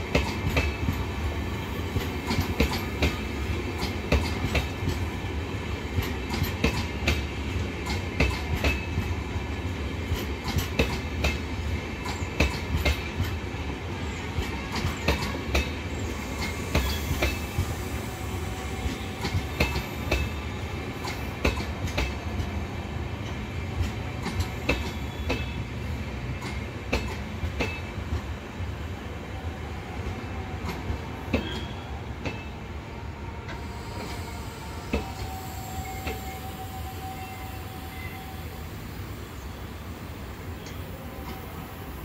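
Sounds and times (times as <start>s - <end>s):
train coaches rumbling: 0.0s - 42.0s
faint steady squeal: 15.9s - 20.8s, 33.4s - 39.8s.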